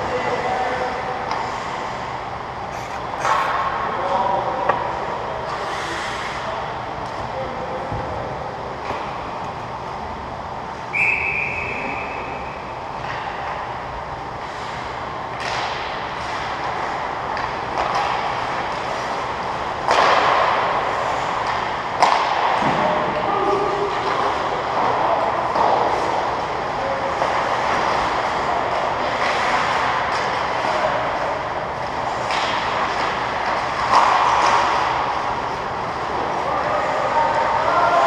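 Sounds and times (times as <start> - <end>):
hockey sticks and pucks clacking: 0.0 - 2.1, 2.7 - 9.6, 11.4 - 38.0
skating noise: 0.0 - 10.1, 10.8 - 38.0
referee's whistle: 10.9 - 12.5.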